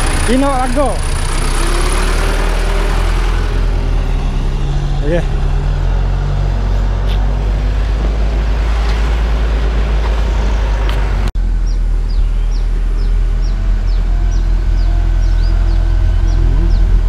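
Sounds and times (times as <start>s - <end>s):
diesel engine rumbling: 0.0s - 17.0s
small birds chirping: 10.2s - 17.0s.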